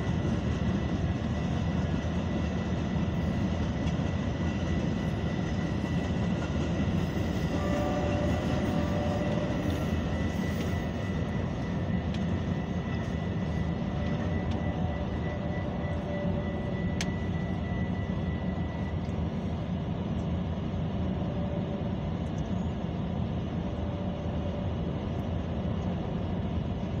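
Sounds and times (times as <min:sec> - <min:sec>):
crossing warning bell: 0:00.0 - 0:19.5
train rumbling: 0:00.0 - 0:27.0.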